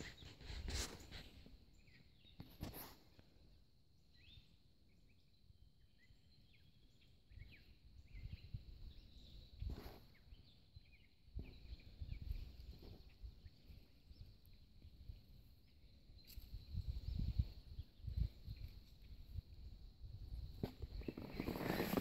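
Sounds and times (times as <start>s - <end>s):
bird chirps: 4.1s - 19.2s
rustles and thumps: 20.5s - 22.0s.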